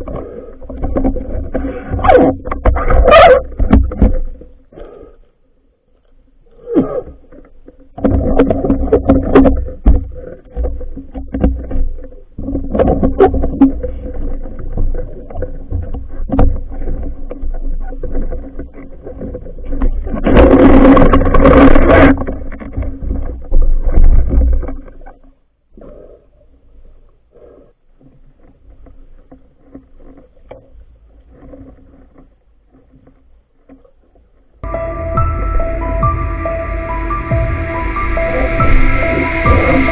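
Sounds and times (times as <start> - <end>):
muffled underwater rumbling: 0.0 - 39.9
steady hum: 34.6 - 39.9.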